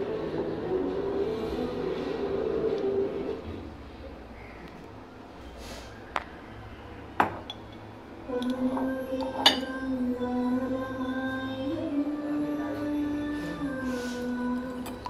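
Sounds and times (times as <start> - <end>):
glass kitchenware clinking: 8.7 - 9.8.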